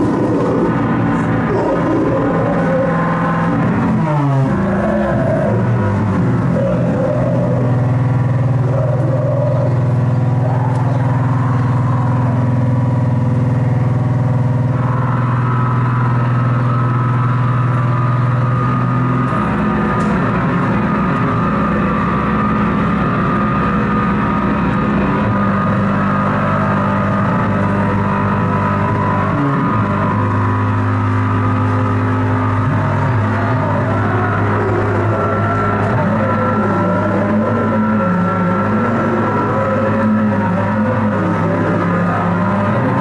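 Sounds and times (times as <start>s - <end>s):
distorted noise drone: 0.0s - 43.0s.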